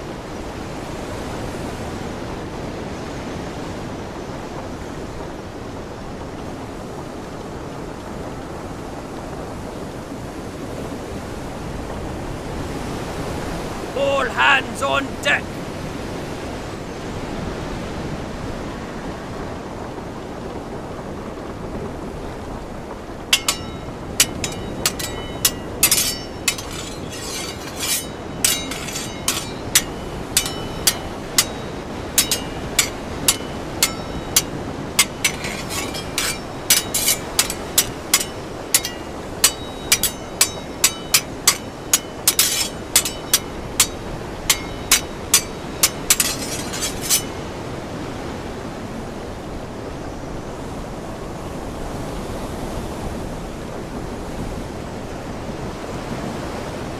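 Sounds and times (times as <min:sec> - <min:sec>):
wind: 0:00.0 - 0:56.9
steady rain: 0:03.6 - 0:11.1, 0:17.1 - 0:23.3
ringing metallic clinks: 0:23.4 - 0:47.4.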